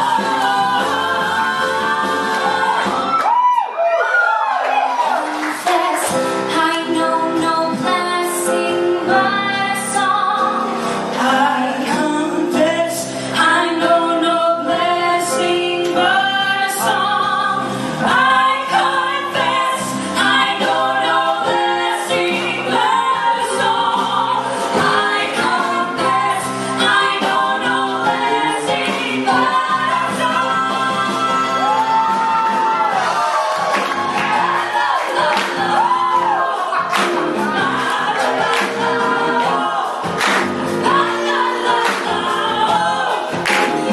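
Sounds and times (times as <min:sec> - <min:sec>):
women singing along: 0:00.0 - 0:03.4, 0:05.5 - 0:43.9
woman singing lead: 0:00.0 - 0:03.7, 0:05.0 - 0:43.9.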